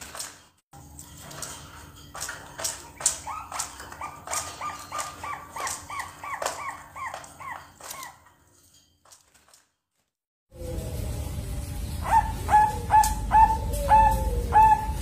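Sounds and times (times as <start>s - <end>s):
doves cooing: 2.9s - 8.2s, 12.0s - 15.0s
low rumble: 10.5s - 15.0s.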